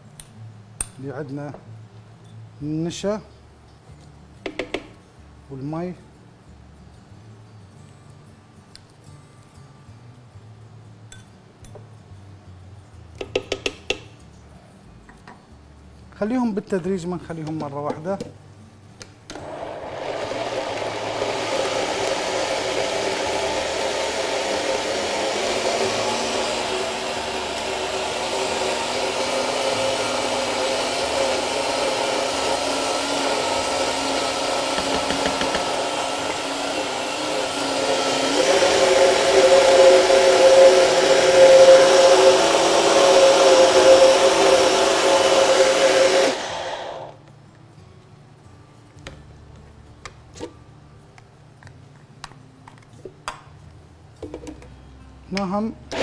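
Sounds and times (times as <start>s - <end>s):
electric blender motor running: 19.4s - 47.2s.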